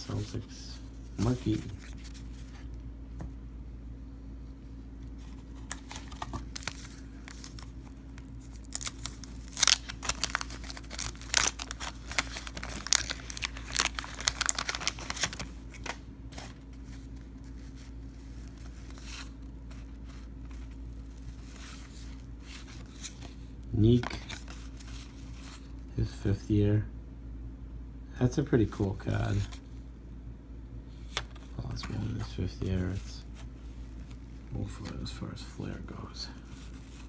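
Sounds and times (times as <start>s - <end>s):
wax paper wrapper ripping: 5.7s - 16.6s.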